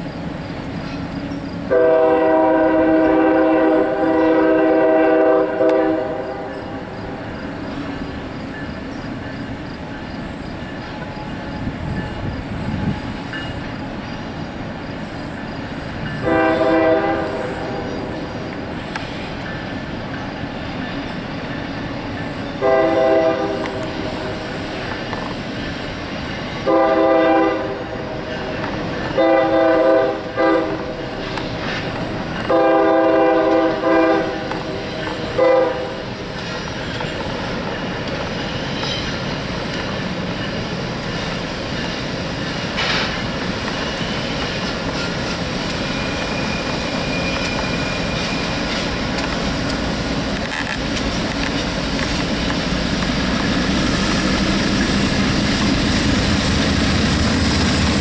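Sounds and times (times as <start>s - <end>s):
train rumbling on rails: 0.0s - 58.0s
locomotive air horn blasts: 1.7s - 6.9s, 16.2s - 18.0s, 22.6s - 24.3s, 26.6s - 28.2s, 29.2s - 31.0s, 32.5s - 36.0s.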